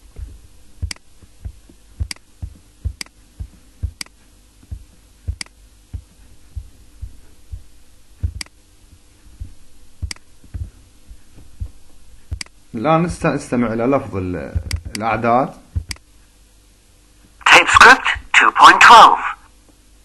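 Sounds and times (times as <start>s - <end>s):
soft low thumps: 0.0s - 17.3s
faint steady hum: 0.0s - 20.0s
computer mouse clicking: 5.4s - 5.6s, 12.4s - 12.6s.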